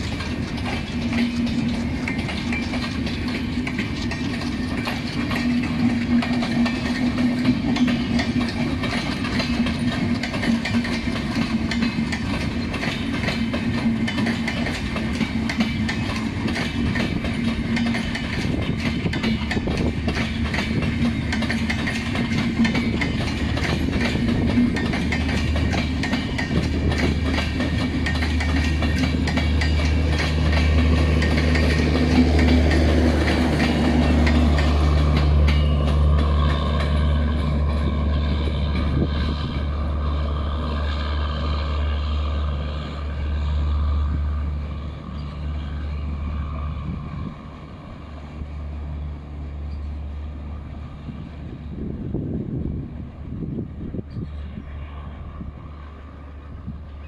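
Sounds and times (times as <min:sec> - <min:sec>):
train wheels on rails: 0:00.0 - 0:57.0
low engine hum: 0:26.5 - 0:57.0.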